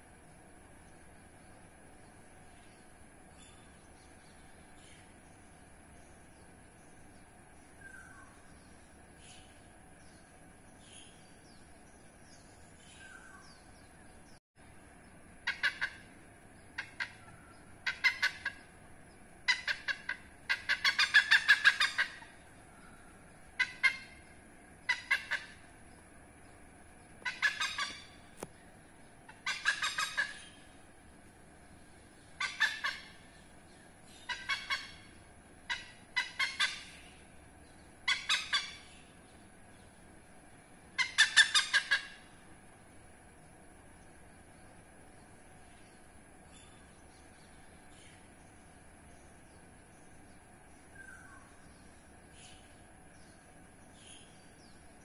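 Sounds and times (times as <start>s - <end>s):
hornbill cackling call: 15.4s - 18.8s, 19.4s - 25.7s, 27.2s - 28.5s, 29.2s - 30.8s, 32.2s - 33.5s, 34.1s - 37.4s, 38.0s - 39.2s, 40.9s - 42.4s.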